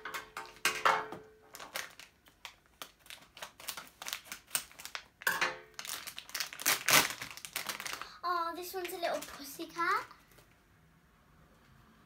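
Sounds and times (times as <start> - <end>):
plastic wrapper crinkling: 1.5 - 10.5.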